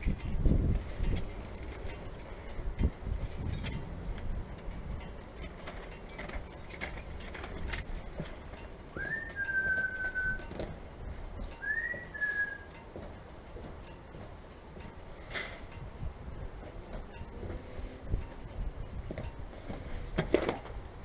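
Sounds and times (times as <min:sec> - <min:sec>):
whistled notes: 0:09.0 - 0:10.5, 0:11.5 - 0:12.8.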